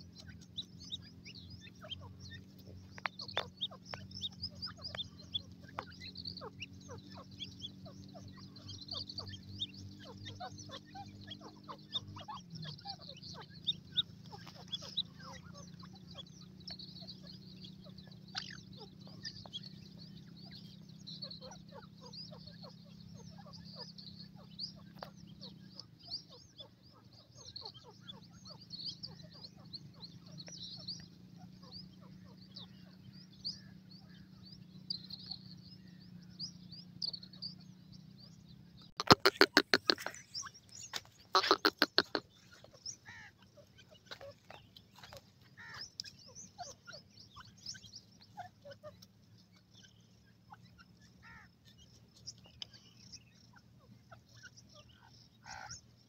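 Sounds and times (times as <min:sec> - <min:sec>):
chicks peeping: 0:00.0 - 0:33.1, 0:38.8 - 0:49.7.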